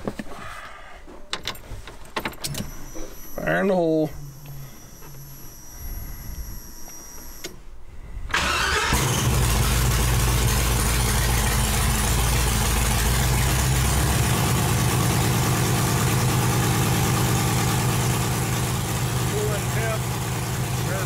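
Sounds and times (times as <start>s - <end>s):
starter cranking: 8.3s - 11.5s
engine idling loudly: 8.4s - 21.0s.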